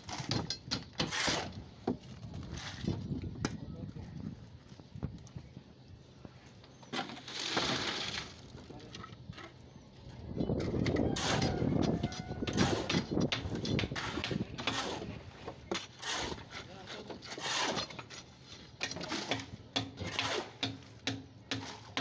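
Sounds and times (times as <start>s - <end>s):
wet concrete scraping: 7.0s - 8.9s, 14.0s - 19.4s.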